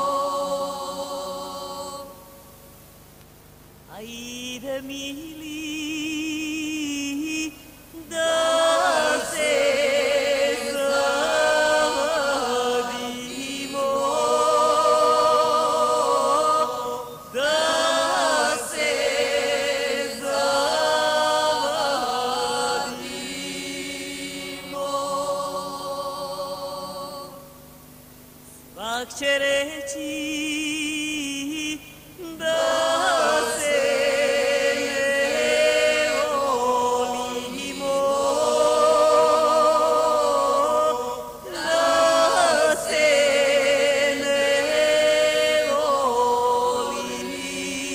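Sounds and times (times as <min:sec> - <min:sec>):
voices singing long wavering notes: 0:31.6 - 0:47.9.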